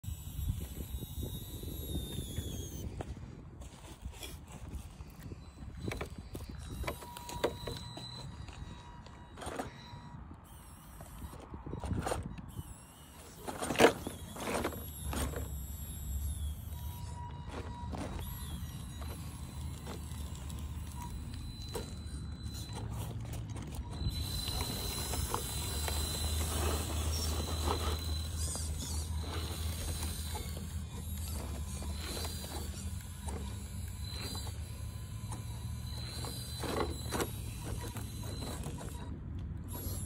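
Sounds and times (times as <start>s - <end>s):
electric motor whining: 0.0s - 40.0s
clicks of tyres on stone: 10.4s - 40.0s.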